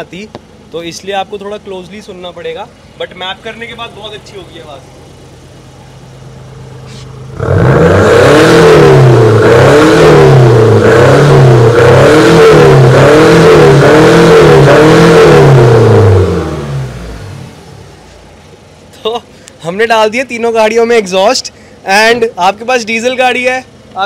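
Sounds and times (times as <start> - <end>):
diesel engine revving: 0.0 - 18.4.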